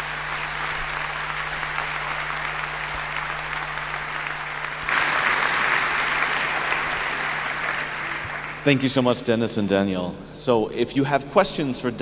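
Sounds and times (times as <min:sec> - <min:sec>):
audience applause: 0:00.0 - 0:09.0.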